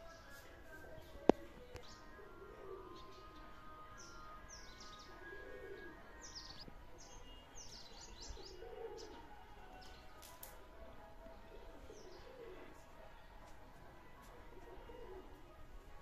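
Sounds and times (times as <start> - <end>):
dove cooing: 1.4 - 3.4, 5.0 - 6.5, 8.5 - 9.4, 11.4 - 12.9, 14.4 - 15.4
small birds chirping: 2.8 - 10.1.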